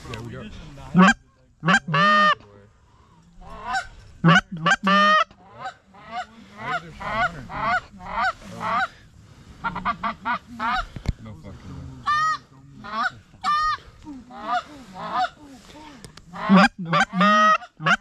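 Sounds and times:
goose clucking: 0:00.9 - 0:02.4, 0:03.4 - 0:11.1, 0:12.0 - 0:15.4, 0:16.3 - 0:18.0
goose honking: 0:01.0 - 0:02.4, 0:03.4 - 0:09.0, 0:09.6 - 0:11.0, 0:16.3 - 0:18.0.

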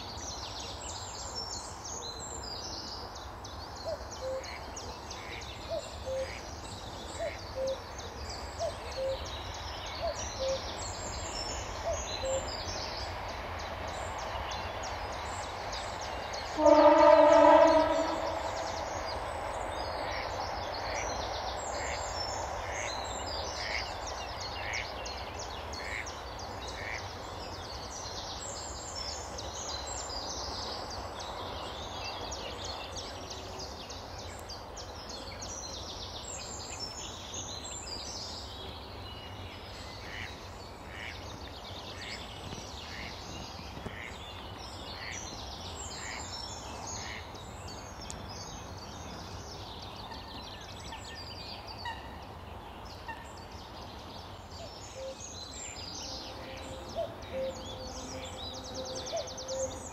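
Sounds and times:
songbirds chirping and trilling: 0:00.0 - 0:59.9.

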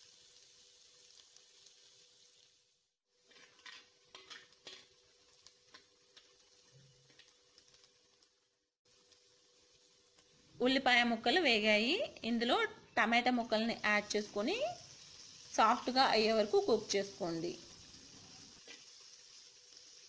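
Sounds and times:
onions sizzling in oil: 0:00.0 - 0:20.0
metal spatula scraping a pot: 0:03.2 - 0:05.0.

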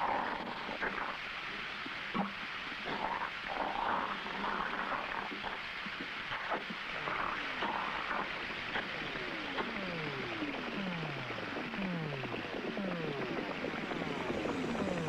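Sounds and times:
scattered clicks: 0:08.7 - 0:15.0
tones sliding down in pitch: 0:08.9 - 0:15.0.

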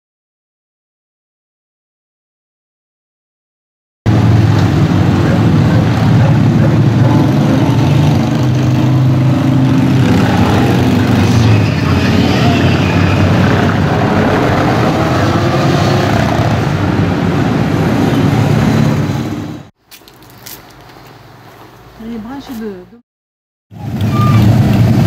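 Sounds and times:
motorcycles riding past: 0:04.1 - 0:19.6.

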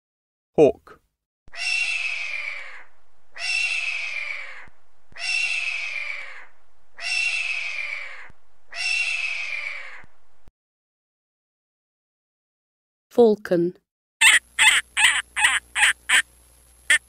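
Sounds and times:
hawk screaming: 0:01.6 - 0:10.1, 0:14.2 - 0:16.2.

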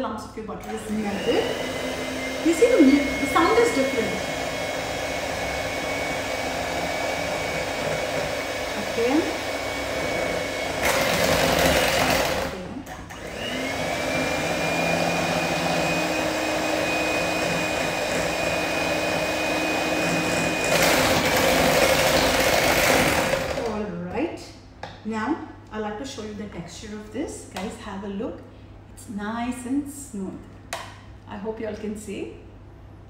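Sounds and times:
electric hand mixer whining: 0:00.6 - 0:23.8.

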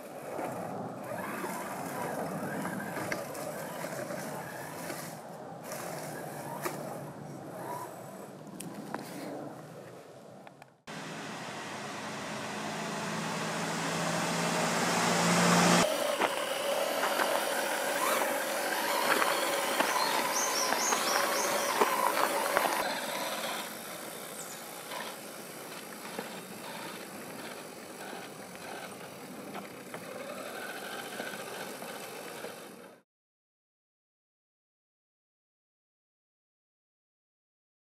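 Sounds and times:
electric motor and gears whining: 0:00.0 - 0:09.3, 0:10.9 - 0:33.0
tyres and chassis clicking: 0:15.8 - 0:23.8.

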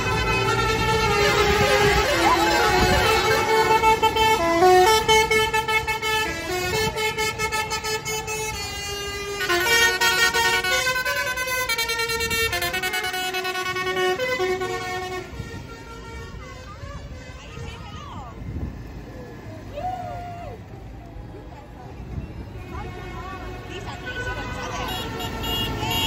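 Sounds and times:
musical horn playing a tune: 0:00.0 - 0:17.4
tractor engines passing: 0:00.0 - 0:26.0
tyres on wet road: 0:00.0 - 0:26.0.

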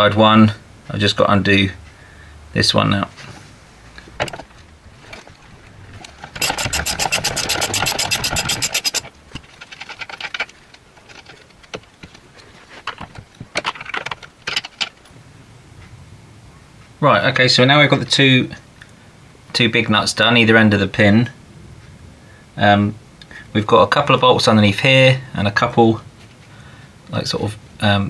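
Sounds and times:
socket ratchet clicking: 0:06.4 - 0:09.1.

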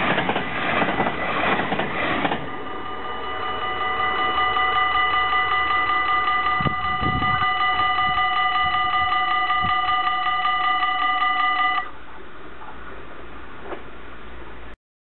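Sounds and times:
electronic crossing bells ringing: 0:02.4 - 0:11.9.

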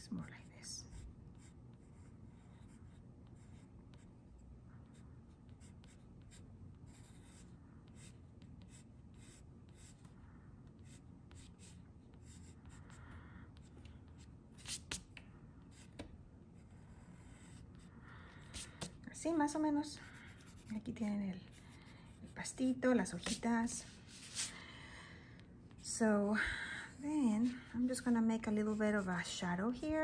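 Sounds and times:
pencil scratching on paper: 0:00.9 - 0:04.2, 0:04.8 - 0:13.0, 0:13.6 - 0:15.0, 0:16.6 - 0:19.0, 0:20.0 - 0:24.5, 0:28.5 - 0:30.0.

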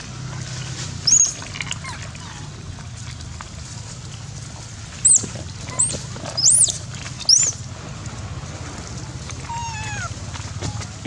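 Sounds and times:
monkey high-pitched squeals: 0:01.0 - 0:02.5, 0:05.0 - 0:07.6, 0:09.5 - 0:10.9.

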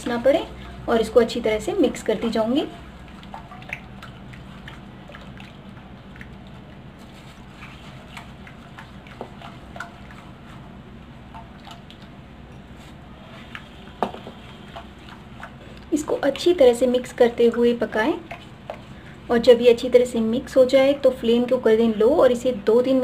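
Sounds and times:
steady low hum: 0:00.0 - 0:23.0
spatula stirring in a pan: 0:01.9 - 0:11.5, 0:13.4 - 0:19.3.

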